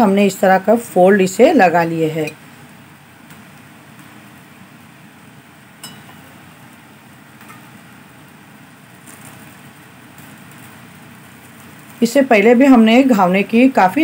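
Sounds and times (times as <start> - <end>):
spoon clinking against pan: 5.8 - 6.2
faint spoon taps: 5.8 - 6.3.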